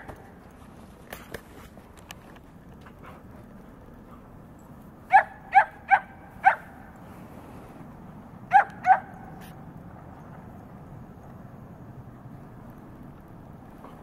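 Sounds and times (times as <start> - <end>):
dog barking: 5.1 - 6.8, 8.5 - 9.2.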